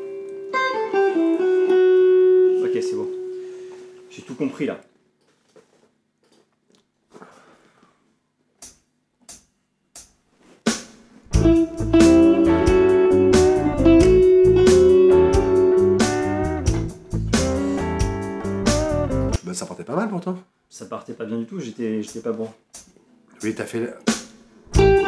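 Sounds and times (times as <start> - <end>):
electric guitar blues lead: 0.0 - 4.1, 11.3 - 19.4, 24.7 - 25.0
drums and bass: 10.7 - 19.4, 22.8 - 25.0.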